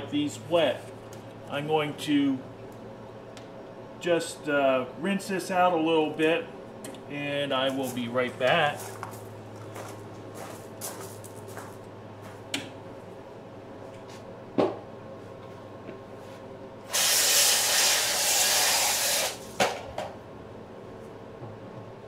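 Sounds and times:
steady low hum: 0:00.0 - 0:22.0
running water spraying: 0:16.9 - 0:19.4.

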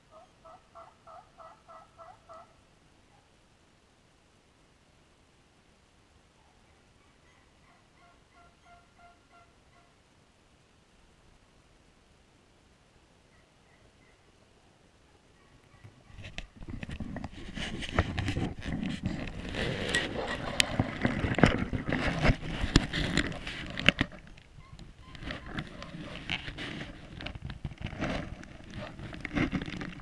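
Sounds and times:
rustling in dry leaves: 0:14.6 - 0:30.0
twigs crackling: 0:15.6 - 0:30.0.

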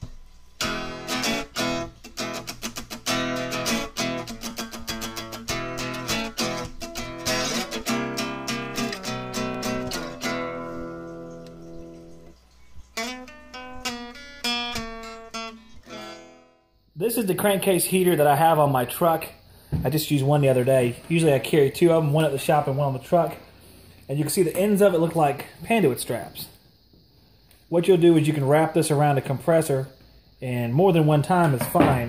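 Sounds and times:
acoustic guitar playing: 0:00.0 - 0:12.4, 0:13.0 - 0:19.3.

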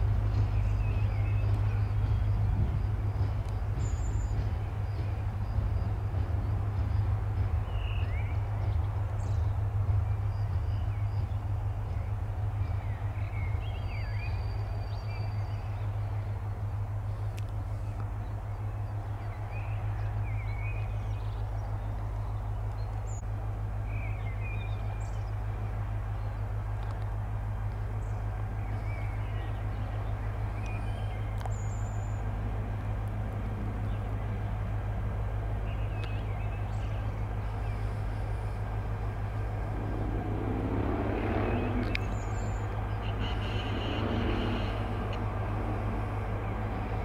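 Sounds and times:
electric locomotives humming: 0:00.0 - 0:47.0
birds chirping: 0:41.1 - 0:45.0.

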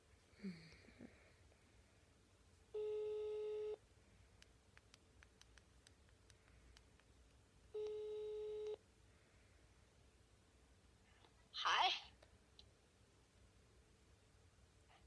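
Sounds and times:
telephone ringback beep: 0:02.8 - 0:03.8, 0:07.8 - 0:08.8.

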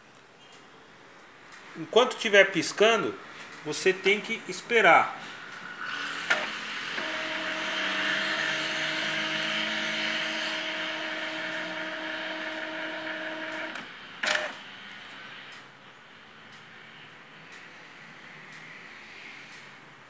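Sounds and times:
printer motor hum and whine: 0:05.5 - 0:15.6
sharp printer clack: 0:06.3 - 0:14.6.

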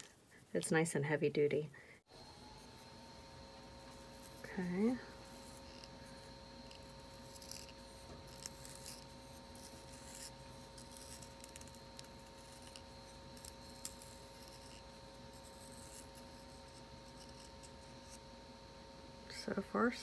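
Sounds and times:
hand sharpener scraping pencil: 0:02.6 - 0:18.2.

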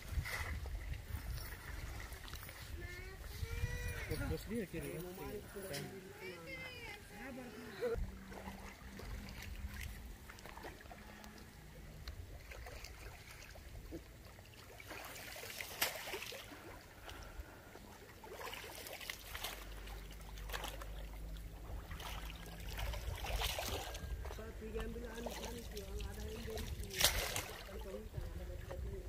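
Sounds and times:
water sloshing and trickling: 0:00.0 - 0:29.0
low rumble: 0:07.8 - 0:14.0.

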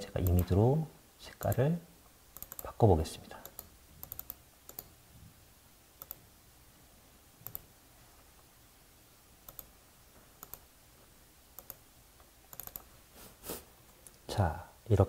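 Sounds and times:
computer mouse clicks: 0:00.2 - 0:00.6, 0:01.4 - 0:01.6, 0:02.4 - 0:02.7, 0:03.4 - 0:04.9, 0:06.0 - 0:06.3, 0:07.4 - 0:07.7, 0:09.4 - 0:09.7, 0:10.4 - 0:10.7, 0:11.6 - 0:11.8, 0:12.5 - 0:12.9.

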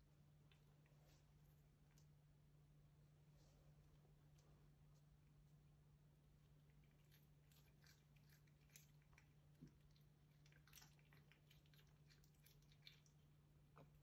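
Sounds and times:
cat chewing with crunching clicks: 0:06.5 - 0:14.0.

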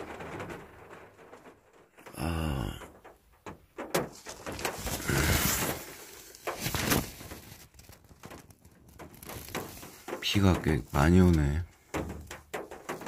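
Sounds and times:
knocks and clicks of handling: 0:00.0 - 0:13.0
low vocal sound: 0:02.1 - 0:03.0.

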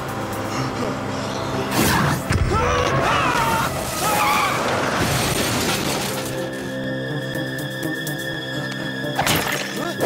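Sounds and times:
tense cartoon music: 0:00.0 - 0:10.0
crashing impact: 0:04.9 - 0:06.4.

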